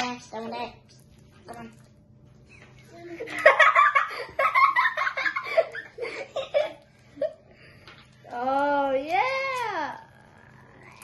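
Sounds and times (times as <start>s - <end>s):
children laughing: 2.5s - 7.5s.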